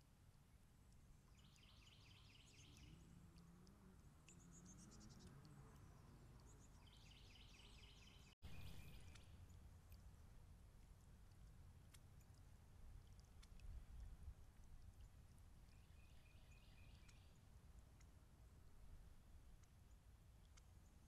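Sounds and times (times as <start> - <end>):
songbird trilling: 1.3 - 3.0, 4.3 - 9.4, 15.7 - 17.4.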